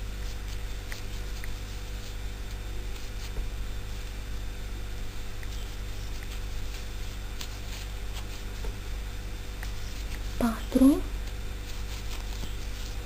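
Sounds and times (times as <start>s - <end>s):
low electrical hum and hiss: 0.0s - 13.0s.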